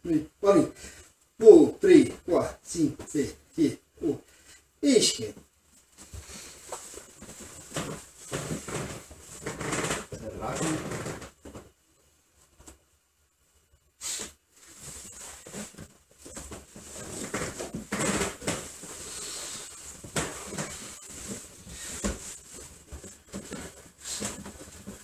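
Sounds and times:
uniforms rustling: 5.2s - 13.0s, 14.5s - 25.0s
bare feet on wooden floor: 5.8s - 11.7s, 14.6s - 25.0s.

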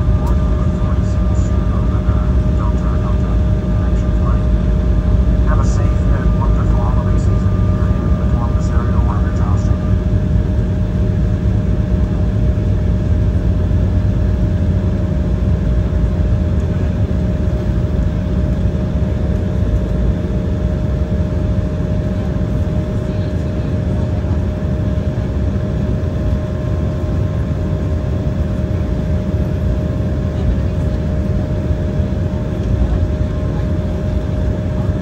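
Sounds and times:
low rumble: 0.0s - 20.2s
airliner engine hum: 0.0s - 35.0s.

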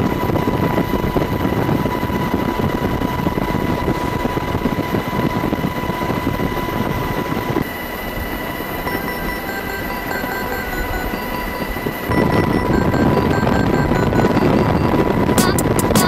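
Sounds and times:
aircraft low rumble: 0.0s - 8.9s
aircraft high whine: 0.0s - 16.0s.

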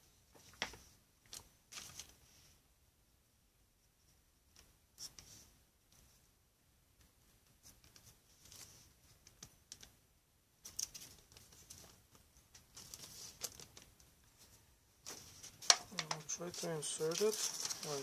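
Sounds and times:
light clicks and taps: 15.1s - 16.4s.

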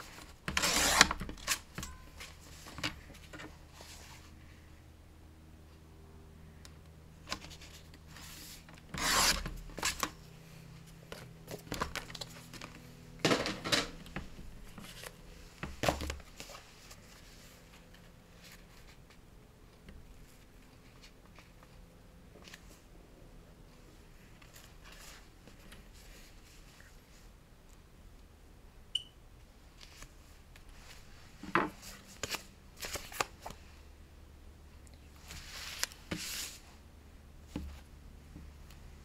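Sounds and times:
paper and card rubbing: 7.5s - 10.1s
paper scraping bursts: 8.1s - 10.0s.

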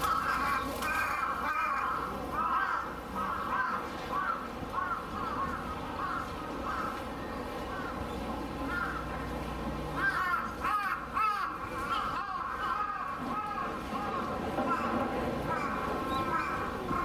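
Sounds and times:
crows cawing: 0.0s - 7.1s, 8.6s - 9.1s, 9.9s - 17.0s.

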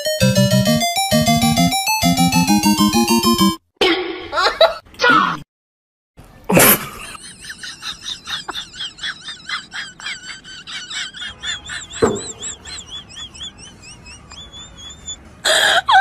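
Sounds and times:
single knock: 12.0s - 12.4s.

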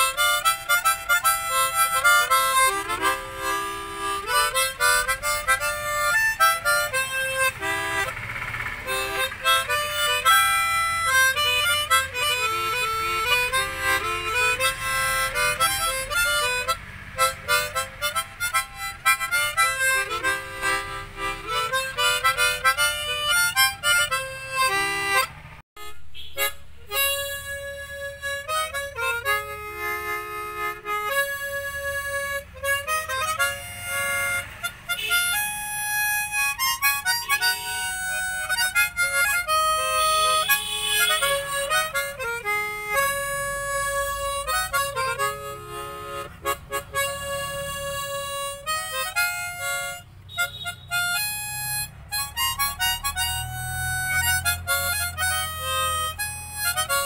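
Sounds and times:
harmonica melody with chords: 0.0s - 57.0s.

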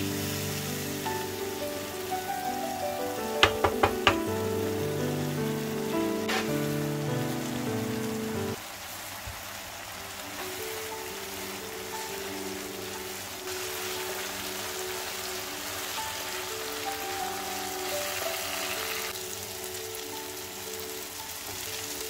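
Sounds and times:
background music: 0.0s - 8.6s, 10.3s - 22.0s
sauce sizzling in frying pan: 0.0s - 22.0s
wooden spoon knocking on pan: 3.4s - 4.4s.

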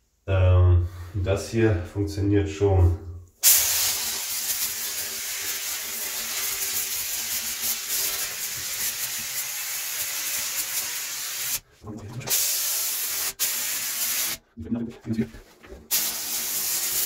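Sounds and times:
steam cleaner hissing: 3.4s - 11.6s, 12.3s - 14.4s, 15.9s - 17.0s.

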